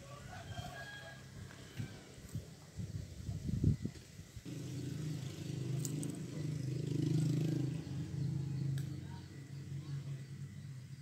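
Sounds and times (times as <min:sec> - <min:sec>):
motor vehicle passing: 0:04.4 - 0:11.0.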